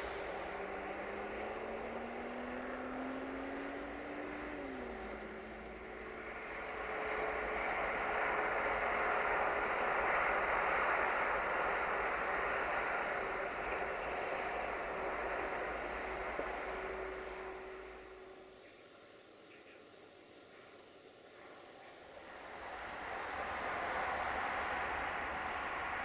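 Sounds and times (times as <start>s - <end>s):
lorry passing on road: 0.0s - 18.7s, 21.6s - 26.0s
faint engine tone: 0.0s - 26.0s.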